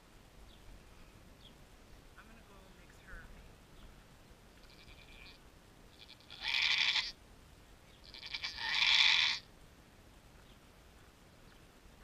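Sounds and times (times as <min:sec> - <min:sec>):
goat bleating: 0:04.6 - 0:05.4, 0:06.0 - 0:07.2, 0:08.0 - 0:09.4.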